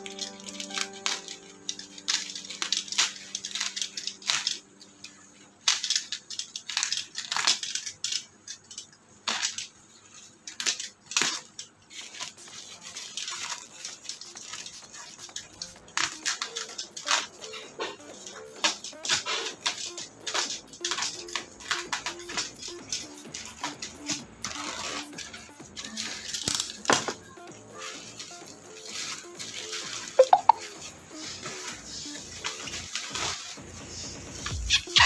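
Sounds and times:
plastic ripping: 5.6 - 27.2.

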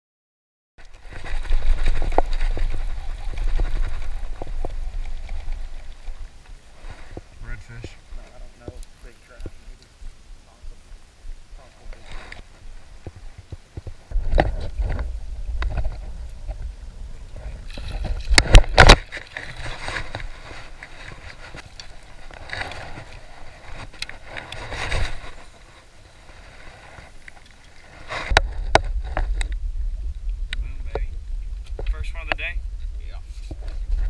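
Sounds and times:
water sloshing: 0.8 - 30.5
wind buffeting microphone: 1.0 - 22.3, 28.2 - 34.0.

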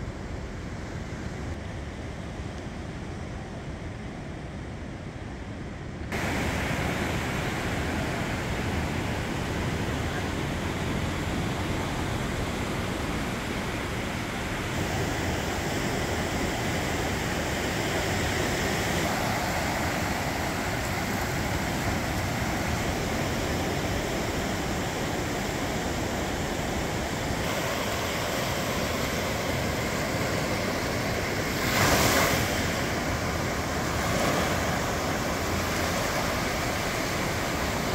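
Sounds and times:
waves breaking on a beach: 0.0 - 37.9.

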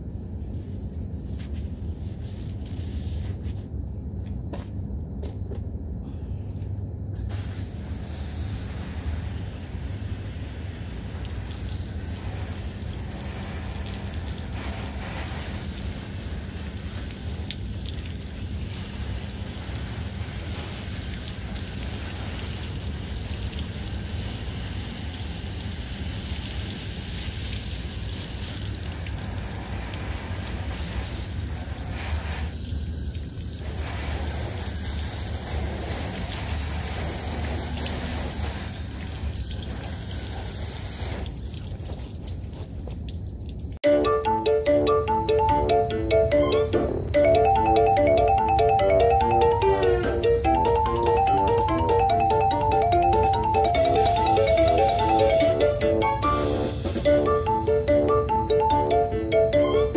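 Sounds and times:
water spraying from hose onto car: 7.3 - 43.8.

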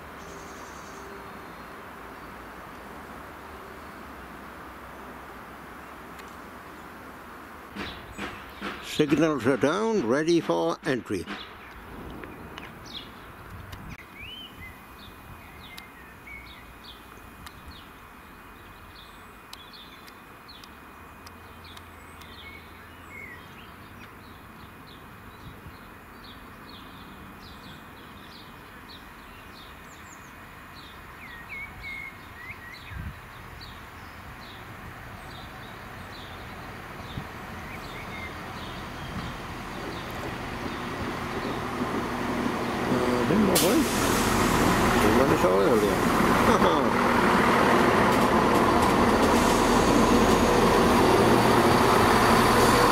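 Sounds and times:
diesel train approaching: 0.0 - 14.3, 33.7 - 52.9
outdoor background noise: 0.0 - 52.9
small birds chirping: 0.2 - 1.8, 11.1 - 43.6.

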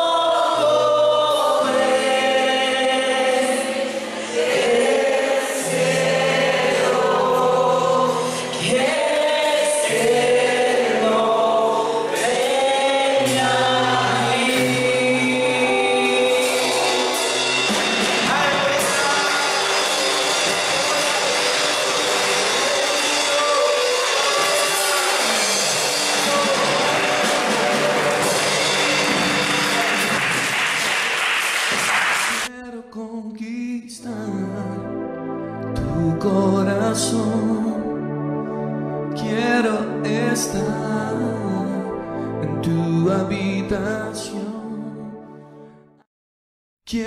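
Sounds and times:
voices singing held notes: 0.0 - 31.4
band with drums and guitar: 12.1 - 32.5.

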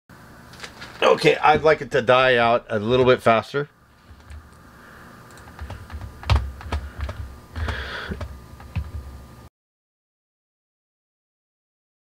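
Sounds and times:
faint steady hum: 0.1 - 9.5
keyboard and mouse clicks: 4.1 - 4.6, 5.3 - 9.1.

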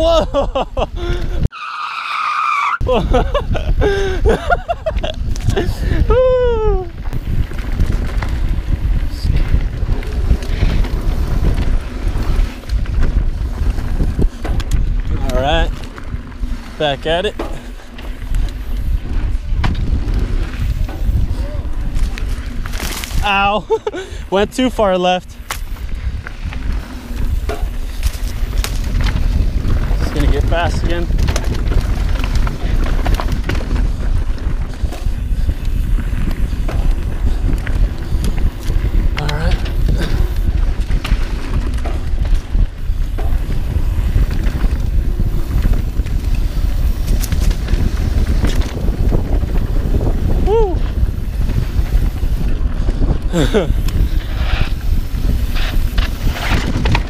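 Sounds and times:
wind rumbling on microphone: 0.0 - 1.5, 2.8 - 57.0
bike tyres on dirt: 0.0 - 57.0
short falling cry: 1.4 - 3.0
bike clattering over bumps: 7.0 - 24.2, 25.3 - 57.0.

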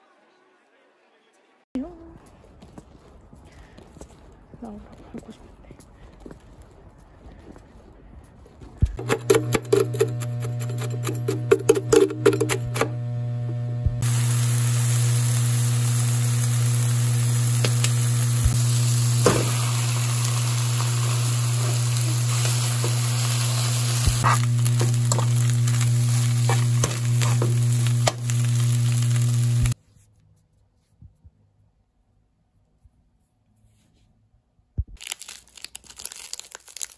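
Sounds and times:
low hum: 8.8 - 29.8
utensil knocking: 9.0 - 12.9
kitchen scissors snipping: 9.0 - 13.0, 24.0 - 29.8
food sizzling in a frying pan: 14.0 - 29.8.

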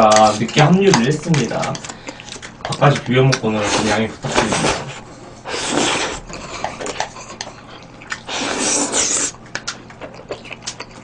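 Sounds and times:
wet chewing and smacking: 0.0 - 11.0
person slurping noodles: 3.6 - 7.2, 8.2 - 9.4.

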